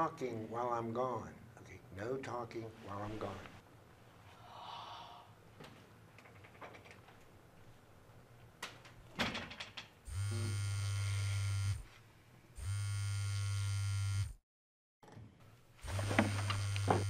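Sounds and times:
phone vibrating on a tabletop: 10.1s - 11.9s, 12.6s - 14.4s, 15.8s - 17.0s.

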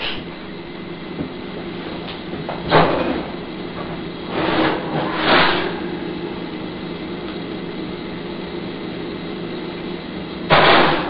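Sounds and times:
oven hum and hiss: 0.0s - 11.0s
metal oven rack scraping: 4.3s - 6.1s.

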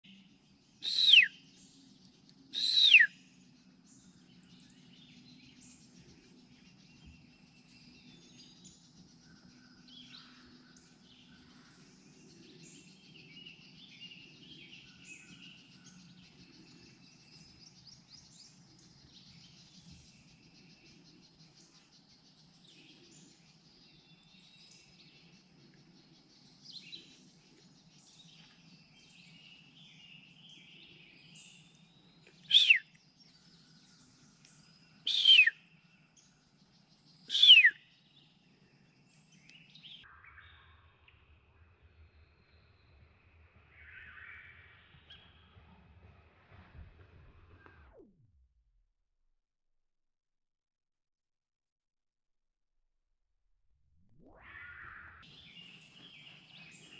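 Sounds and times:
songbirds chirping: 0.0s - 48.0s, 54.3s - 56.9s
bird of prey screaming calls: 0.8s - 1.3s, 2.6s - 3.1s, 32.5s - 32.8s, 35.1s - 35.6s, 37.3s - 37.8s.

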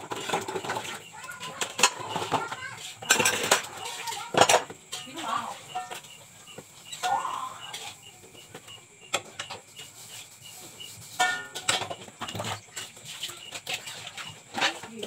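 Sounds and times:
pots and bowls clattering: 0.0s - 15.0s
faint high chirp: 4.9s - 11.0s.

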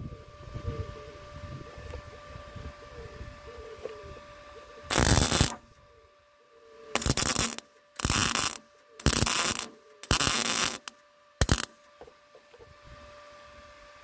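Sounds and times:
faint steady hum: 0.0s - 14.0s
welder arc bursts: 4.9s - 5.6s, 6.9s - 11.8s.

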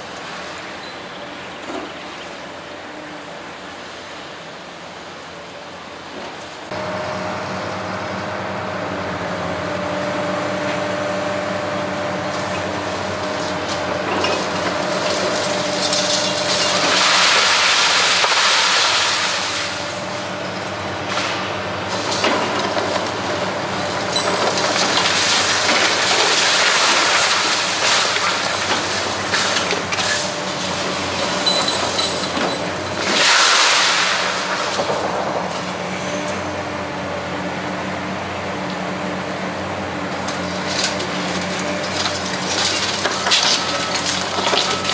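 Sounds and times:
diesel engine running: 6.7s - 33.2s, 34.0s - 44.9s
concrete crunching and falling rubble: 12.5s - 20.1s, 21.1s - 35.6s, 40.3s - 44.9s.

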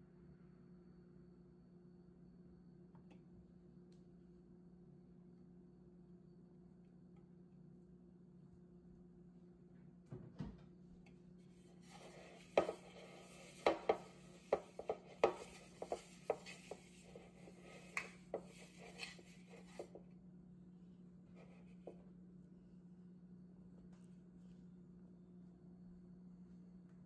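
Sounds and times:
fingers rubbing inside a bowl: 11.6s - 20.0s.

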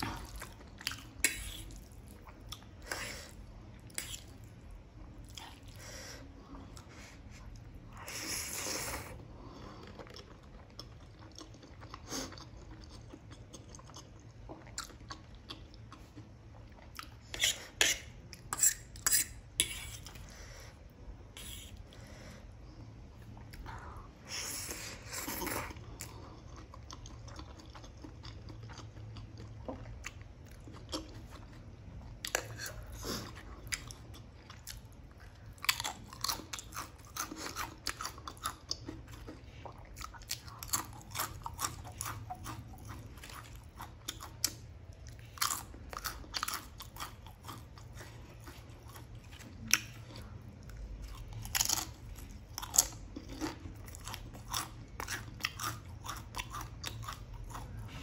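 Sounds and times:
soft chewing: 0.0s - 58.0s
potato chips crunching: 51.1s - 57.8s.

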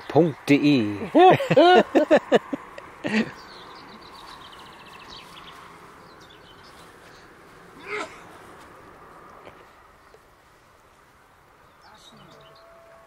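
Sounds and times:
low background hiss: 0.0s - 13.0s
higher bird chirps: 3.0s - 8.1s, 11.6s - 12.9s.

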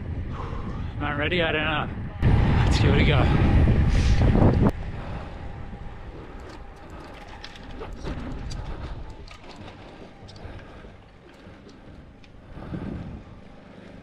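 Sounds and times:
wind rumble on microphone: 0.0s - 14.0s
bike clicks and ticks: 6.0s - 14.0s.

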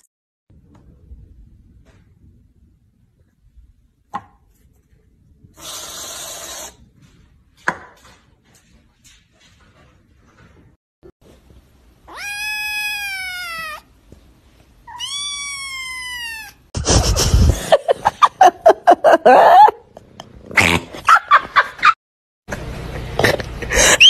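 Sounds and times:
kitten meowing: 12.1s - 13.9s, 14.8s - 16.6s.

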